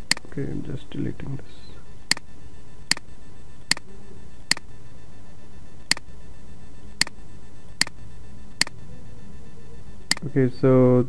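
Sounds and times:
steady low hum: 0.0s - 11.0s
computer mouse clicking: 3.6s - 3.9s.

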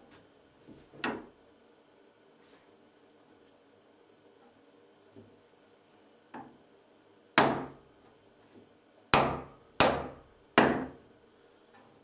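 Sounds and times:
hammer knocking on wood board: 7.4s - 7.7s, 9.2s - 11.0s.

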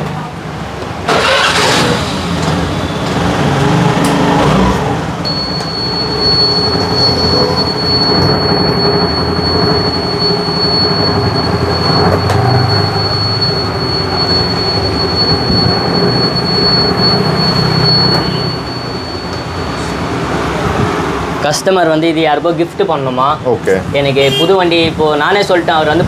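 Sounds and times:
high whine: 5.2s - 20.9s.

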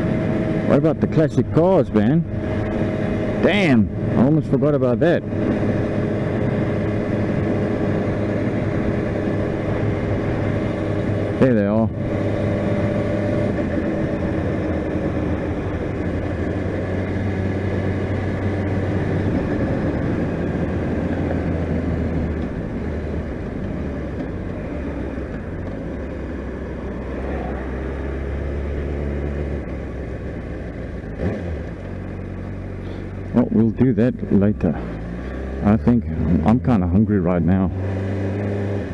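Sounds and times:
sport motorcycle engine running: 0.0s - 38.9s.

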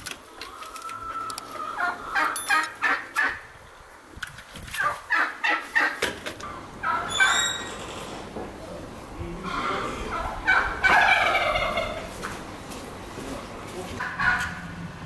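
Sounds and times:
turkeys gobbling: 0.2s - 3.6s, 4.8s - 8.4s, 9.5s - 12.6s, 13.9s - 14.8s.

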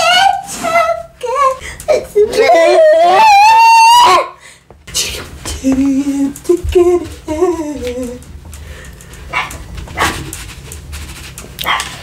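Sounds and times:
girl humming a tune: 5.8s - 8.2s.

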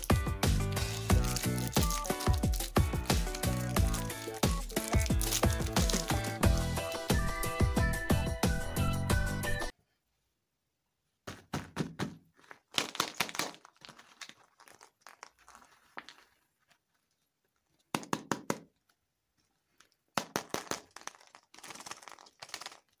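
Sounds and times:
foil wrappers crinkling: 0.0s - 6.9s, 12.3s - 17.2s, 20.5s - 23.0s.

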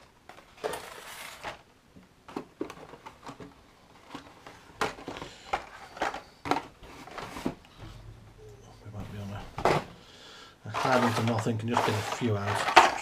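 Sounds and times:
card and packaging rustling: 0.0s - 7.7s, 10.7s - 13.0s.

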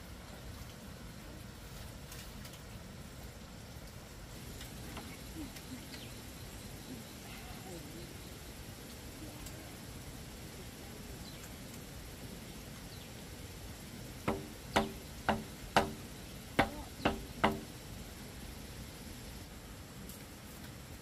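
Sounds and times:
hammer knocking on bamboo pole: 14.2s - 16.0s, 16.6s - 17.7s.

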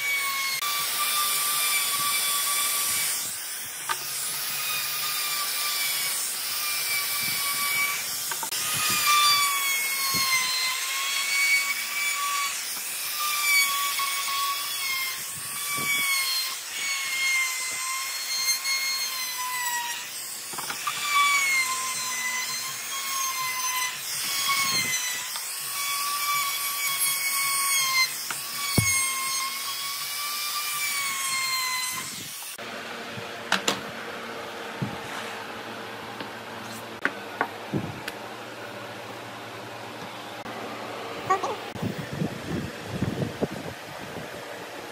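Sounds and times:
trim router cutting wood: 0.0s - 33.8s.

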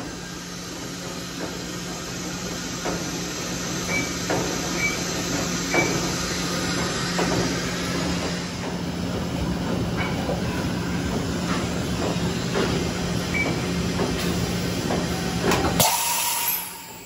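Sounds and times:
machine hum and hiss: 0.0s - 17.0s.

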